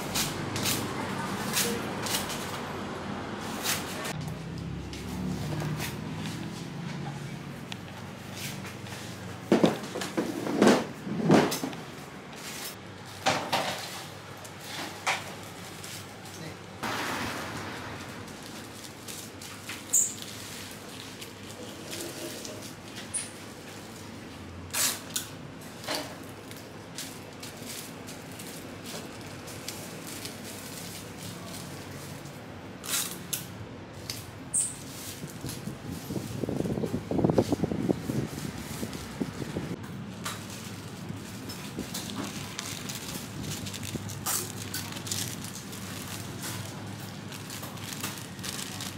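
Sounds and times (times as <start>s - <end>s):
paper crinkling: 40.1s - 48.9s.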